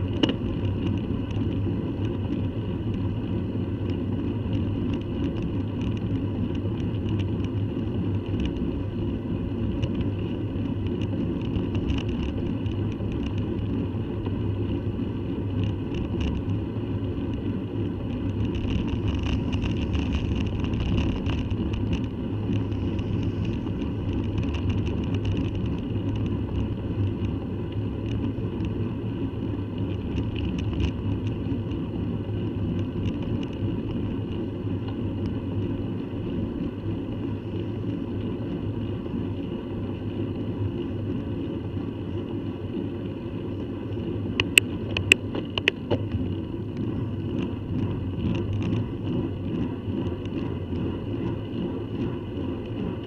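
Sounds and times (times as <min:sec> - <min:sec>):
bicycle tyre noise on tarmac: 0:00.0 - 0:53.0
wind rumble on microphone: 0:00.0 - 0:53.0.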